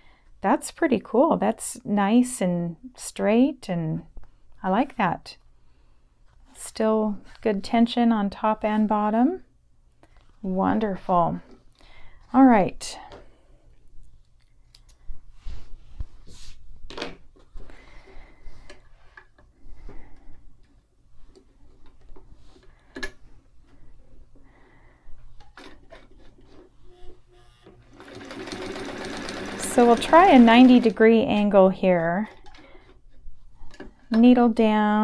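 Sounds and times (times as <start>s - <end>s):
sewing machine motor running: 27.4s - 31.0s.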